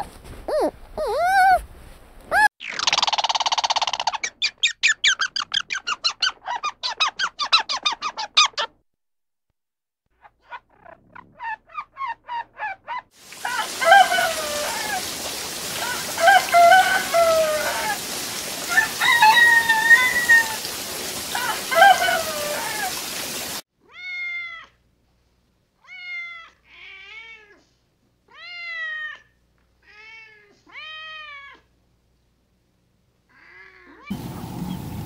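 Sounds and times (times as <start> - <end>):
animal calls: 0.0 - 1.6, 10.2 - 23.2
rain-like hiss: 13.2 - 23.6, 34.1 - 35.0.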